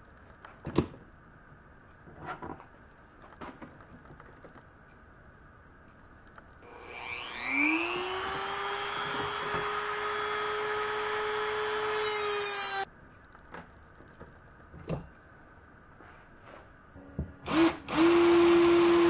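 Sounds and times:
rotary tool whine: 6.6 - 12.8, 17.5 - 19.0.

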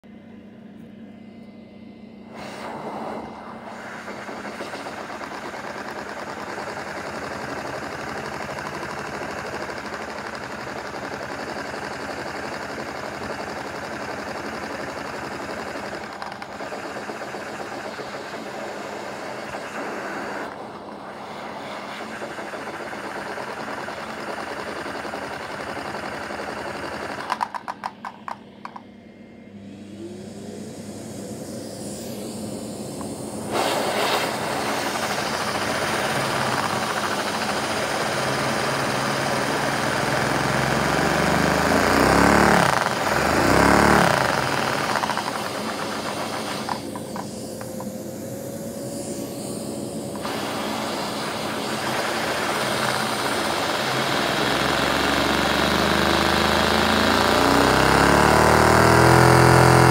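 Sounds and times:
rush of air: 2.2 - 5.1
toy engine whirring: 4.0 - 28.8, 34.3 - 48.1, 50.1 - 59.9.

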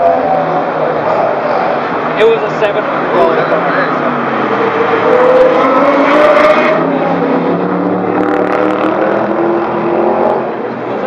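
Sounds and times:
car engine accelerating past: 3.8 - 10.6.

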